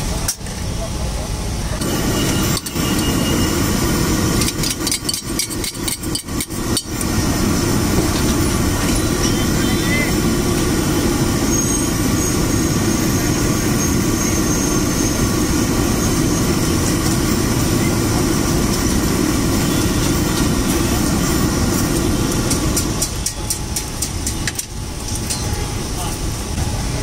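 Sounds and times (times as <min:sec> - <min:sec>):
spoon tapping iron griddle: 0:04.4 - 0:06.9.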